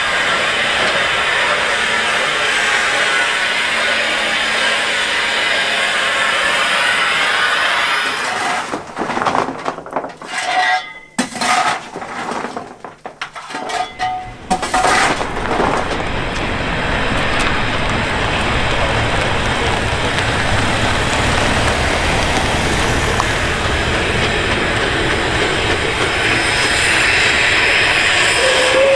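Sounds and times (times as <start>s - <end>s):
steam locomotive hissing: 0.0s - 8.9s, 13.8s - 28.9s
coal shovel scraping on metal: 6.9s - 16.1s.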